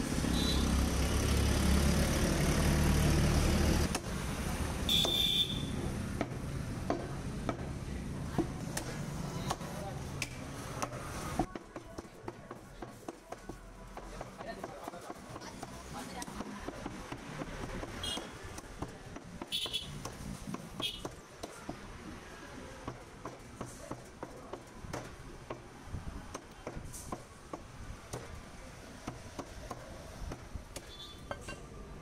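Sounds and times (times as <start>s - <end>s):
cleaver chopping on wooden block: 29.0s - 30.9s.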